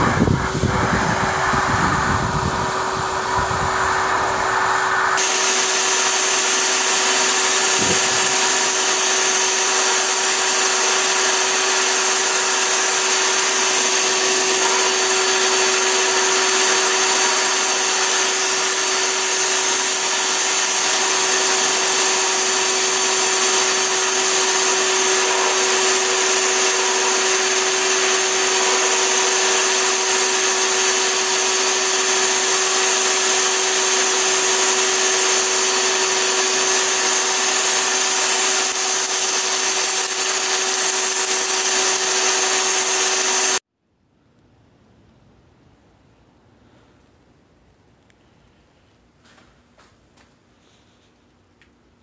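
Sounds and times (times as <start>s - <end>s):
wind rumbling on microphone: 0.0s - 5.2s
electric blower rushing air: 0.0s - 43.6s.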